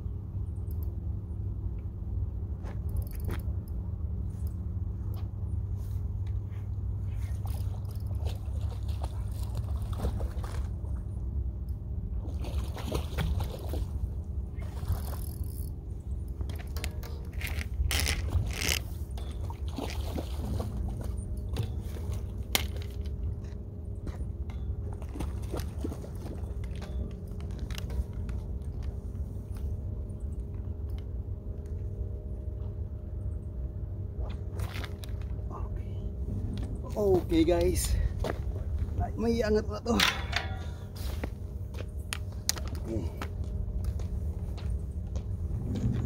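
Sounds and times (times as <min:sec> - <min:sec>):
steady low rumble: 0:00.0 - 0:46.0
fishing reel clicks and scrapes: 0:16.8 - 0:18.9.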